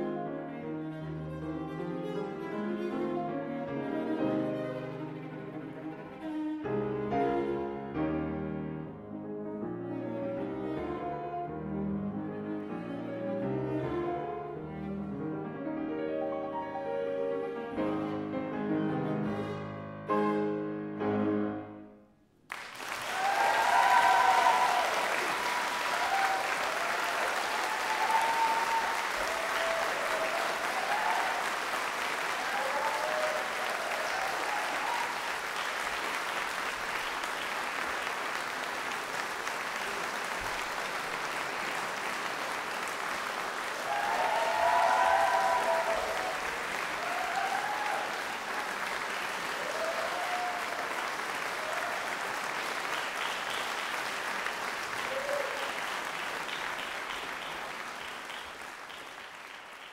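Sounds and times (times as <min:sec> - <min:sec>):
audience applauding: 0:22.5 - 0:59.9
audience cheering: 0:22.5 - 0:59.9.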